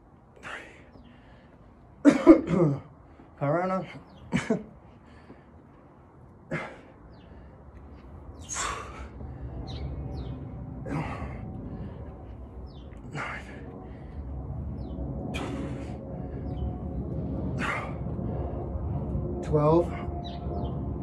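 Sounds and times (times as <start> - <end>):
person breathing hard: 0.4 - 1.8, 4.8 - 9.9, 10.7 - 14.6, 15.2 - 19.2
faint bird chirps: 8.3 - 9.0.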